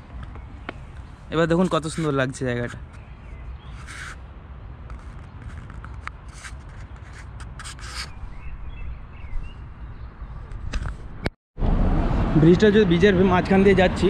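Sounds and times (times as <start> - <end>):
wind rumbling on microphone: 4.8 - 12.4.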